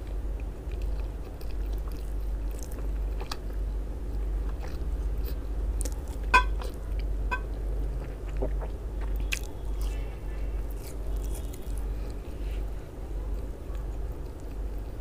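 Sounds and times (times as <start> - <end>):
steady low hum: 0.0 - 15.0
wet chewing: 0.4 - 3.6, 4.2 - 12.4
biting through sausage: 7.8 - 10.0.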